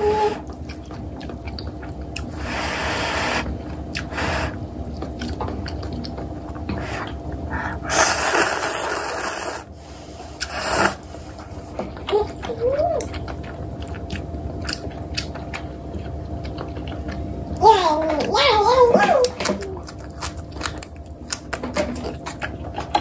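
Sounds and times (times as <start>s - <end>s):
noodles being slurped: 7.9s - 9.7s, 10.4s - 11.5s.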